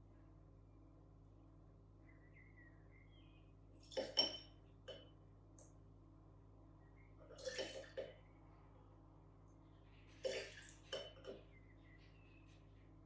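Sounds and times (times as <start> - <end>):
faint liquid splashes: 7.2 - 8.2, 10.1 - 11.4.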